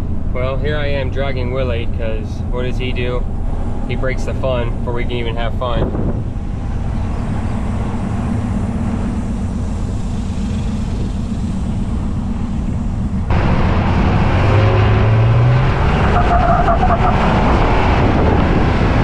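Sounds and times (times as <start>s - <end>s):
truck engine and tyre rumble: 0.0s - 19.0s
engine note rising in pitch: 2.1s - 19.0s
wind rushing over microphone: 2.5s - 19.0s.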